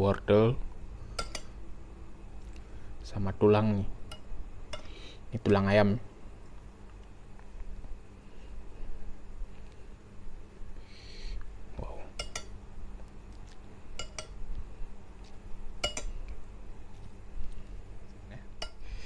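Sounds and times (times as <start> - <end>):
tableware clinking on glass bowl: 12.2 - 12.5, 14.0 - 14.4.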